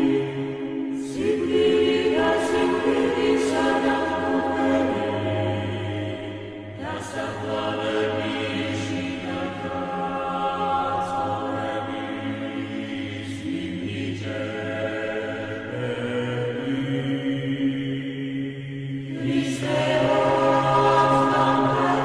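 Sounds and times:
choral chant: 0:00.0 - 0:22.0.

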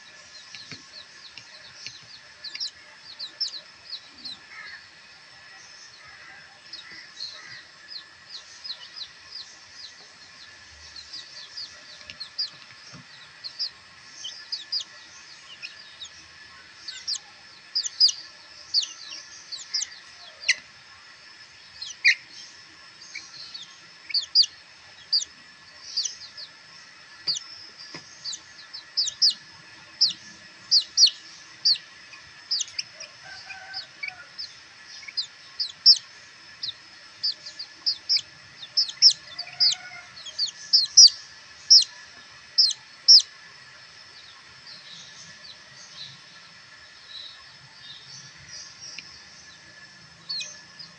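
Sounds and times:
chicks peeping: 0:00.0 - 0:05.1, 0:06.6 - 0:21.0, 0:21.7 - 0:22.3, 0:23.1 - 0:43.3, 0:48.2 - 0:50.9
lower soft chick calls: 0:00.4 - 0:04.7, 0:06.5 - 0:16.2, 0:16.8 - 0:20.7, 0:23.1 - 0:25.3, 0:25.9 - 0:26.6, 0:27.2 - 0:43.3, 0:50.2 - 0:50.9.

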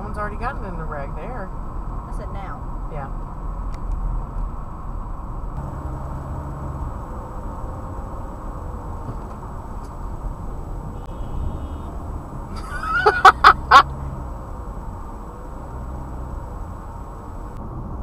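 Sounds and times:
car road noise: 0:00.0 - 0:18.0
car horn honks: 0:10.8 - 0:12.1.

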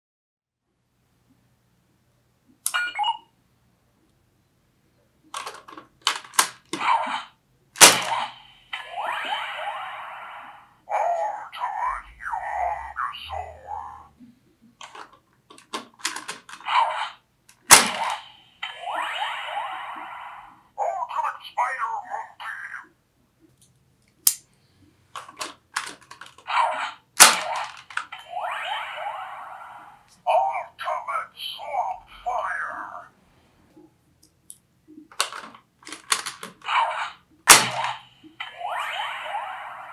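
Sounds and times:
toy electronic beep: 0:02.7 - 0:03.3
plastic toy clicks and snaps: 0:05.3 - 0:06.8, 0:14.8 - 0:16.6, 0:23.6 - 0:24.4, 0:34.2 - 0:36.7
electronic toy sound effect: 0:08.7 - 0:14.1, 0:18.0 - 0:22.9, 0:26.5 - 0:31.0, 0:38.4 - 0:39.9
electronic hissing with rising sweeps: 0:08.8 - 0:10.8, 0:18.7 - 0:20.6.

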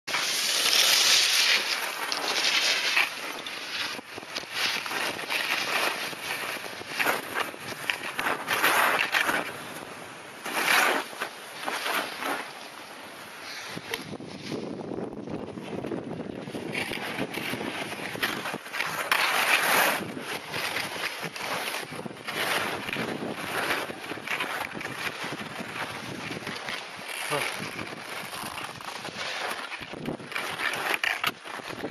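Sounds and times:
skis hissing through snow: 0:00.1 - 0:14.8, 0:16.5 - 0:31.0
wind rushing over microphone: 0:13.7 - 0:18.7, 0:19.8 - 0:30.4.

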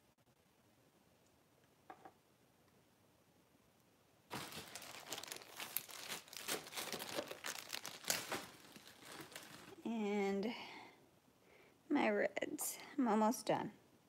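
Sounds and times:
bags crinkling and rustling: 0:04.3 - 0:09.8.

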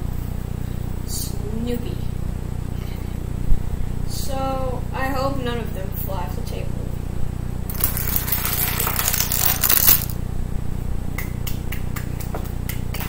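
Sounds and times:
plastic figures toppling clatter: 0:07.7 - 0:10.2
hands clapping: 0:11.2 - 0:13.0.

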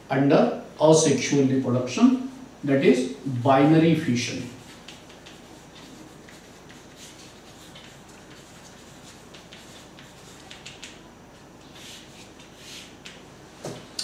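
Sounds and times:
chalk tapping and scratching: 0:04.4 - 0:13.8.

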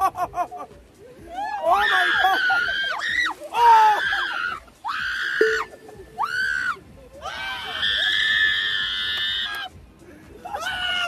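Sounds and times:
men screaming: 0:01.3 - 0:09.7, 0:10.4 - 0:11.0
men yelling: 0:01.4 - 0:06.6.

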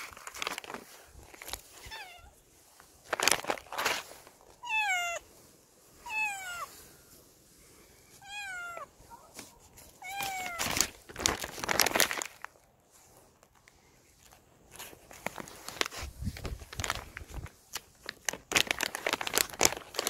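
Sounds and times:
cat meowing: 0:01.8 - 0:02.4, 0:04.6 - 0:05.3, 0:06.0 - 0:06.7, 0:08.2 - 0:09.0, 0:10.0 - 0:10.7.

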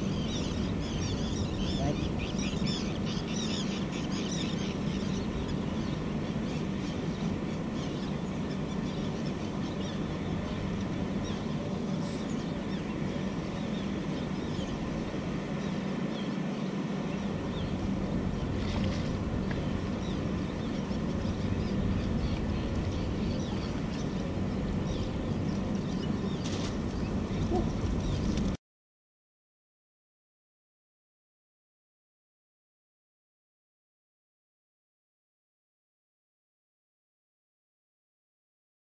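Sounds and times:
low engine hum: 0:00.0 - 0:28.6.

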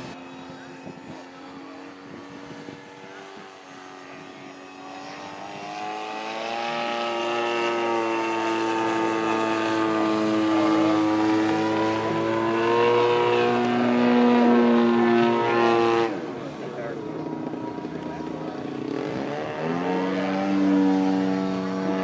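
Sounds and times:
model plane engine droning: 0:00.0 - 0:22.0.

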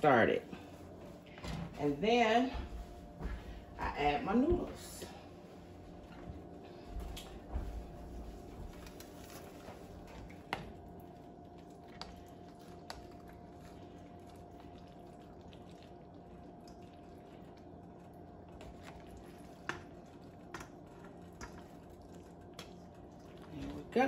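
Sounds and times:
steady hum: 0:00.0 - 0:24.0
wet squishing of macaroni: 0:08.2 - 0:24.0.

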